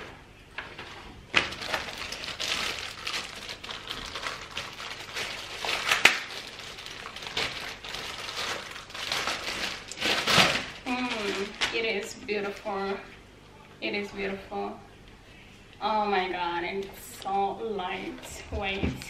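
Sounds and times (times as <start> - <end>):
plastic bag crinkling: 0.8 - 12.7.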